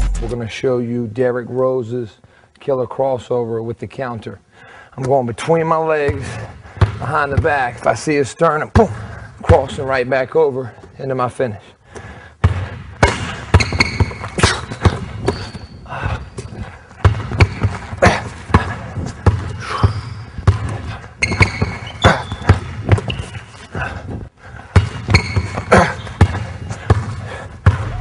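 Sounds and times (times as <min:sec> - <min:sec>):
sneakers squeaking on court: 0:12.4 - 0:23.8, 0:24.8 - 0:28.0
basketball bouncing on hardwood: 0:26.2 - 0:28.0.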